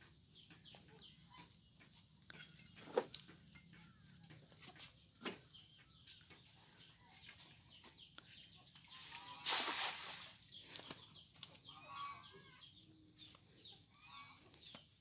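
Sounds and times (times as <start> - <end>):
net splashing into water: 9.0 - 10.4.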